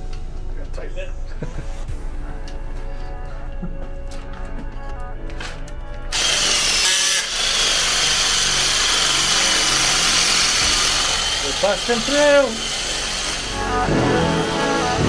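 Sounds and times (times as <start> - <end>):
background music: 0.0 - 15.0
electric drill boring into block: 6.1 - 15.0.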